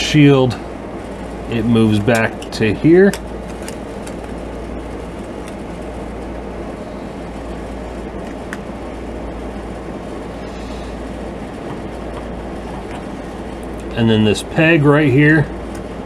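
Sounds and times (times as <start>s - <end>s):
low background rumble: 0.0s - 16.0s.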